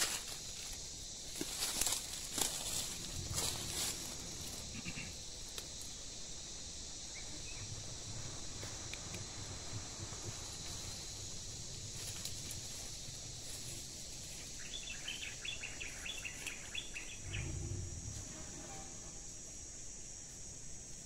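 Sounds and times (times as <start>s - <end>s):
brush rustling: 0.0s - 5.9s
insects chirring: 0.0s - 21.0s
faint low rumble: 1.4s - 14.6s, 17.0s - 19.5s.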